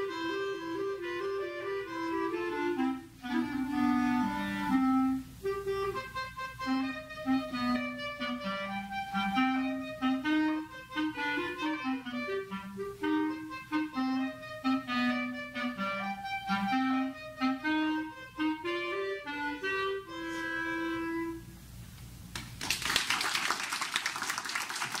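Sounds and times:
clarinet melody: 0:00.0 - 0:21.8
audience applause: 0:22.4 - 0:25.0.

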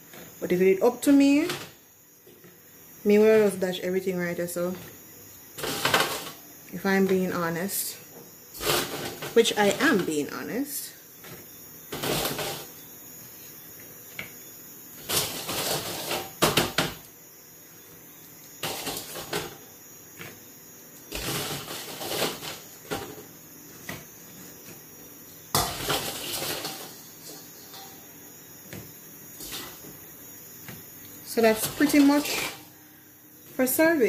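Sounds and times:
fried chips clattering on wood: 0:18.6 - 0:19.6, 0:25.5 - 0:28.1.

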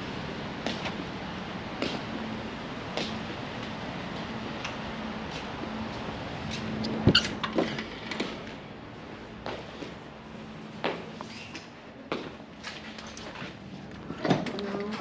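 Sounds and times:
steady hiss and low hum: 0:00.0 - 0:15.0
footsteps on concrete: 0:00.6 - 0:01.0, 0:10.7 - 0:13.6.

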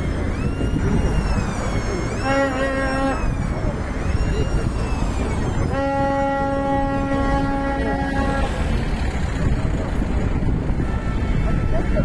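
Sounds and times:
low rumble of traffic: 0:00.0 - 0:12.0
wind: 0:00.0 - 0:12.0
car horn blowing: 0:02.2 - 0:03.3, 0:05.7 - 0:08.7, 0:10.7 - 0:12.0.

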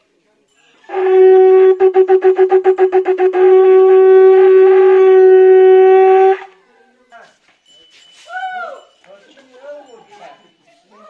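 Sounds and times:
horn blowing long note: 0:00.9 - 0:06.6.

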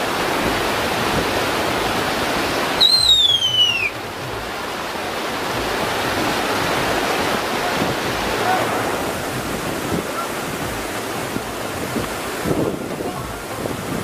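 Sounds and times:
steady rushing outdoor noise: 0:00.0 - 0:14.0
high whistle gliding downward: 0:02.8 - 0:04.0.

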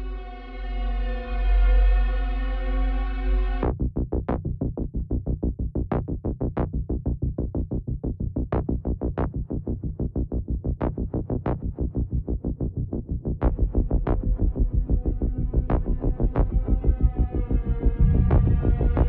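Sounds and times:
heavy bass layer: 0:00.0 - 0:03.7, 0:08.6 - 0:19.0.

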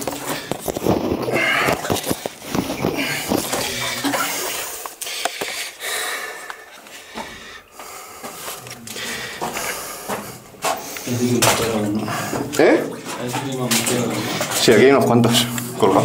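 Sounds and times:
camera and clothing rustling: 0:00.0 - 0:05.6
person breathing hard: 0:01.3 - 0:11.1.

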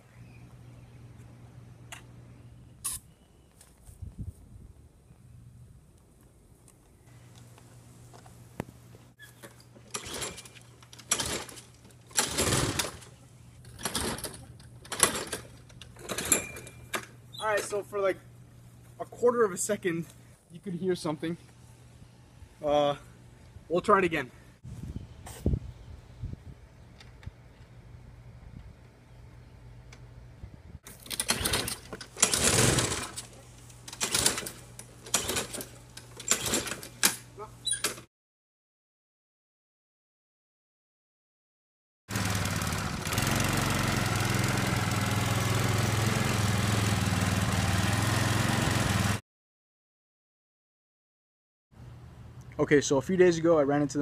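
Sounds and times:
lawn mower pull-starter whirring: 0:09.2 - 0:17.8, 0:30.9 - 0:38.1, 0:42.1 - 0:49.2
engine cranking: 0:09.8 - 0:17.1, 0:30.9 - 0:37.2.

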